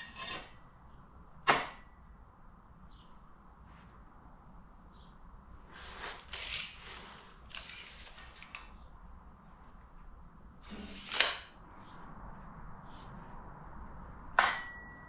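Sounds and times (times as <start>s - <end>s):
tape measure rasping and clicking: 6.0s - 8.8s, 10.7s - 11.5s.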